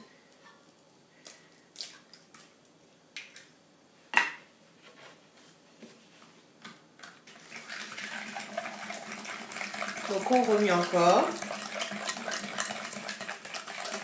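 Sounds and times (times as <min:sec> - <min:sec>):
steady whisking: 0:07.5 - 0:14.0.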